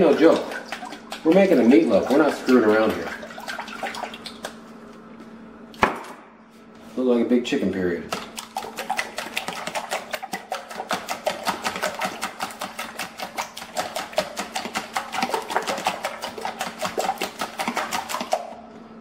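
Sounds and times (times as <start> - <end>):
fork beating egg whites: 0.0 - 4.6, 8.1 - 18.6.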